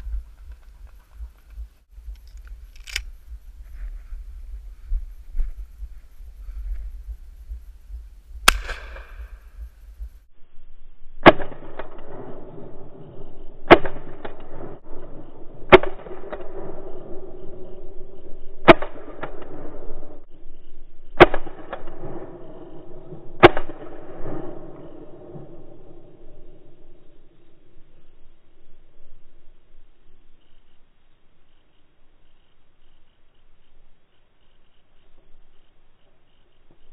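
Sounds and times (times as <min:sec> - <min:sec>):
loud shotgun shots: 0:08.4 - 0:09.4, 0:23.4 - 0:24.4.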